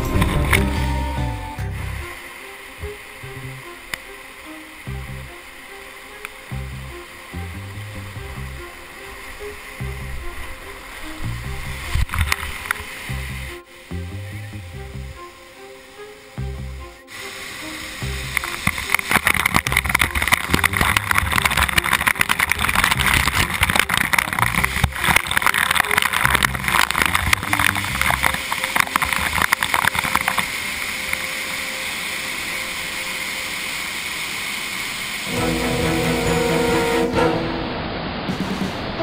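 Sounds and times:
waterfall pouring: 0.0s - 14.2s, 17.1s - 38.3s
background music: 0.0s - 39.0s.

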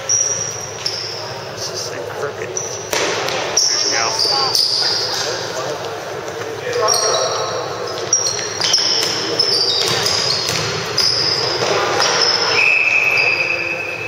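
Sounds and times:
sneakers squeaking on hardwood: 0.0s - 1.5s, 2.4s - 14.0s
echoing gym noise: 0.0s - 14.0s
basketball bouncing: 2.8s - 4.6s, 7.9s - 12.5s.

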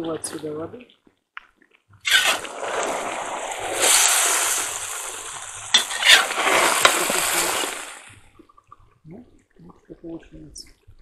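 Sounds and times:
metal skimmer scraping pot: 2.0s - 7.9s
food sizzling in a pot: 2.1s - 8.2s.

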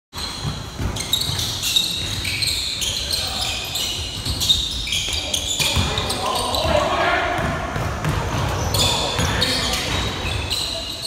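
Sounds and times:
basketball bouncing: 0.2s - 2.4s, 4.0s - 10.3s
sneaker squeaks on court floor: 0.2s - 11.0s.

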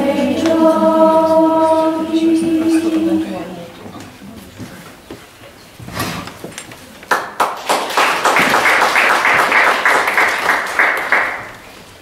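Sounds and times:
audience applauding: 7.1s - 11.6s.

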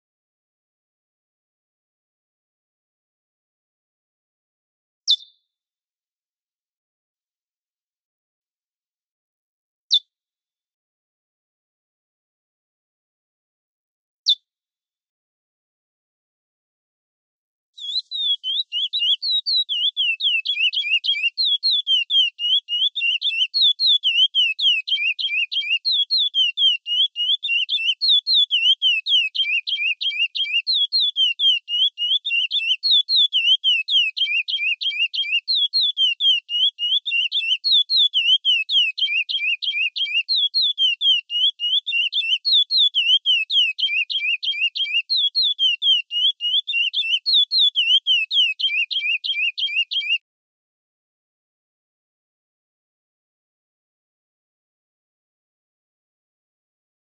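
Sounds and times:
finch singing whistled notes: 5.1s - 5.4s, 17.8s - 50.2s.

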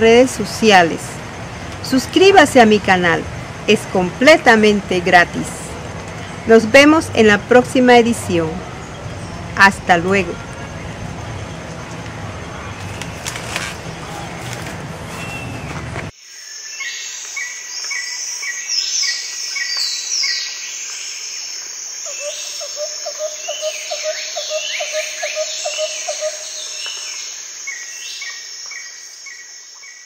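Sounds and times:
birds chirping and whistling: 15.0s - 15.9s
high insect drone: 16.1s - 30.0s.

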